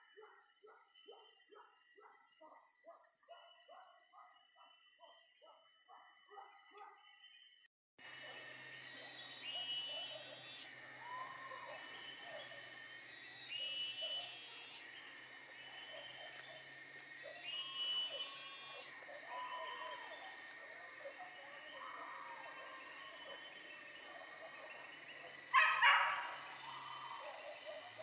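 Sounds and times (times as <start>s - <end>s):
insects chorus: 0.0s - 28.0s
dogs barking: 18.6s - 28.0s.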